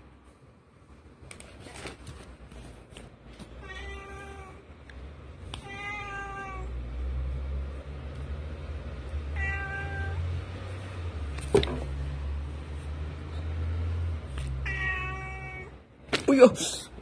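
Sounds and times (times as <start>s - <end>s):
cat meowing: 3.6s - 4.6s, 5.6s - 6.8s, 9.3s - 10.3s, 14.6s - 15.8s.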